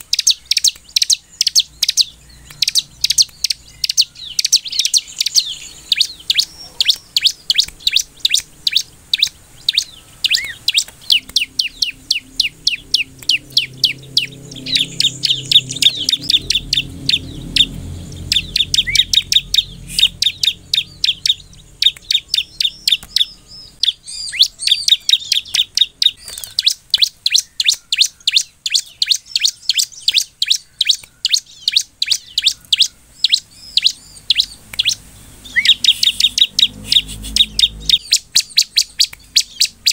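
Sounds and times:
bird singing rapid chirps: 0:00.0 - 0:39.9.

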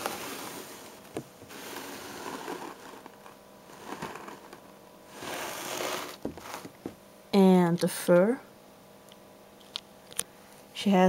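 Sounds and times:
soft rustling: 0:00.0 - 0:06.9.

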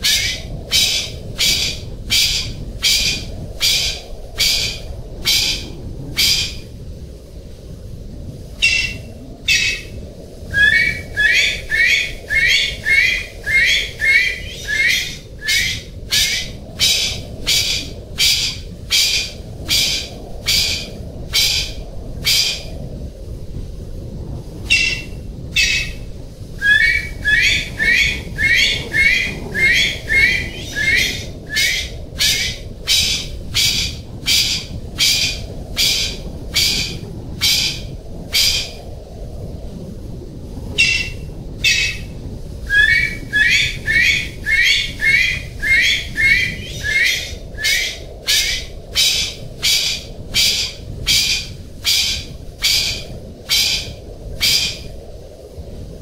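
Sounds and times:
pheasant calling: 0:00.0 - 0:05.6, 0:08.6 - 0:09.9, 0:10.5 - 0:21.7, 0:24.7 - 0:26.0, 0:26.6 - 0:37.8, 0:40.8 - 0:42.0, 0:42.7 - 0:54.8
low rumble: 0:00.0 - 0:54.4.

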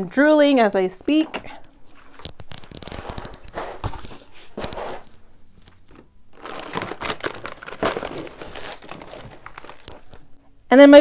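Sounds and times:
plastic packaging crinkling: 0:01.8 - 0:10.4.

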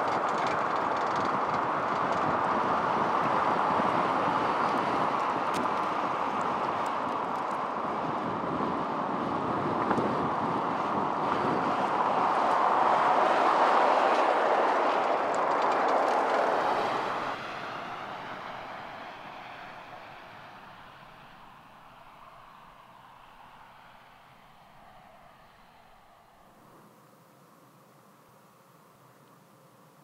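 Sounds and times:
tyre and road noise: 0:00.0 - 0:30.0.

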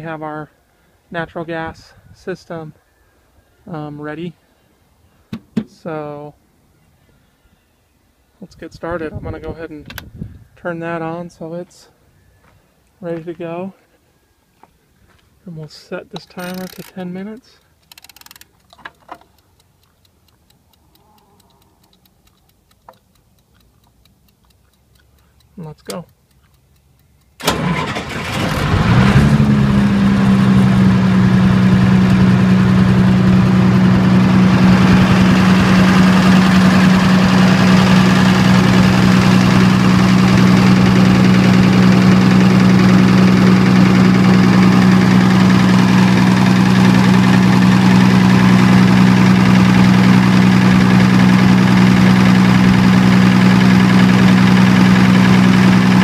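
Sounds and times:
diesel generator engine starting: 0:27.4 - 0:56.0.

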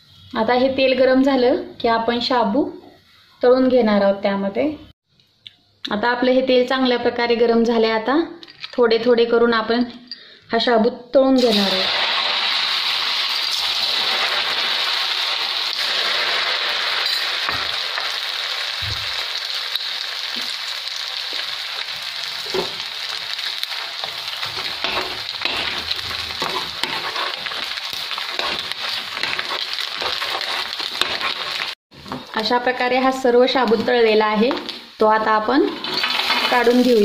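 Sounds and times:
deep-frying sizzle with crackling pops: 0:11.4 - 0:37.0.

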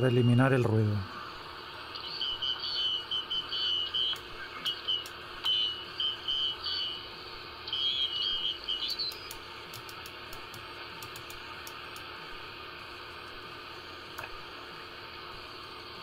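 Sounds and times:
high-pitched radio tones: 0:00.0 - 0:09.5
radio static hiss: 0:00.0 - 0:16.0.

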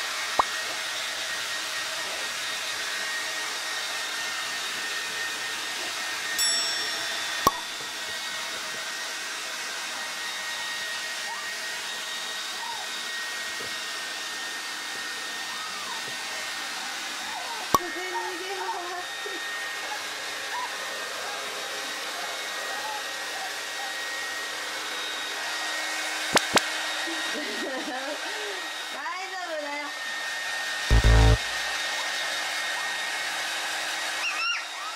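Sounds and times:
hair dryer running with whine: 0:00.0 - 0:34.9
puppy whimpering: 0:12.6 - 0:12.9, 0:15.4 - 0:16.2, 0:17.1 - 0:20.8.

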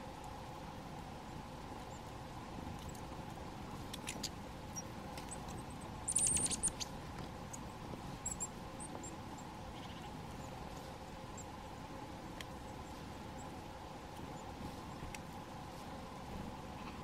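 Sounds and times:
sharp bird ticks: 0:03.9 - 0:06.9, 0:07.5 - 0:08.5
thin high bird calls: 0:04.0 - 0:10.6.

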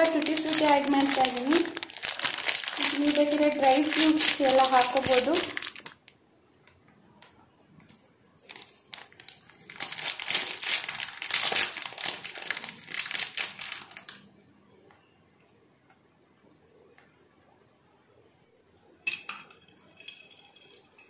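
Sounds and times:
plastic packet crinkling: 0:00.0 - 0:06.1, 0:08.4 - 0:14.2.

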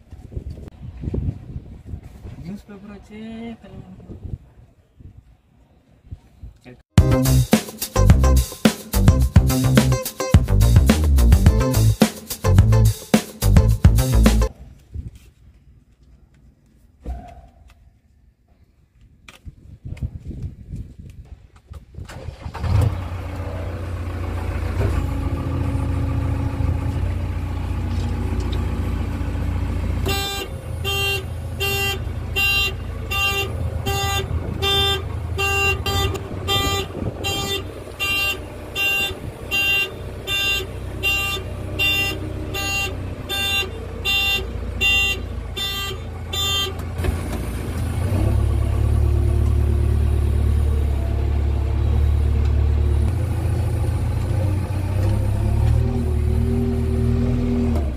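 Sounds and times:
diesel engine running: 0:22.1 - 0:57.9.

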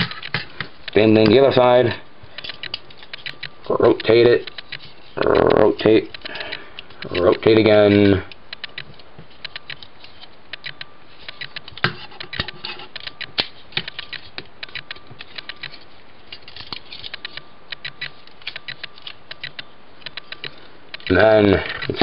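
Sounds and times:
plastic action figure clicking: 0:02.4 - 0:09.9, 0:16.7 - 0:21.2.

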